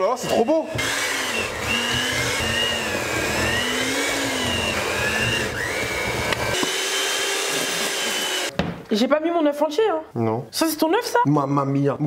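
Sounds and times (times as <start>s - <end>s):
kitchen appliance motor whirring: 0.0s - 8.6s.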